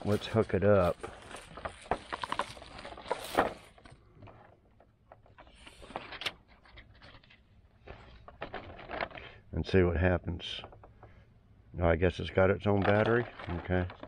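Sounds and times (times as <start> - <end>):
cables and clamps clicking and rattling: 0.0 - 9.5, 12.4 - 14.0.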